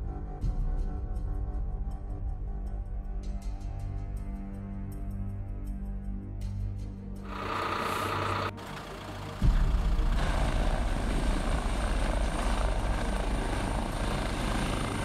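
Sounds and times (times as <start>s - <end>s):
high turbine whine: 7.2s - 15.0s
helicopter rotor chop: 7.3s - 15.0s.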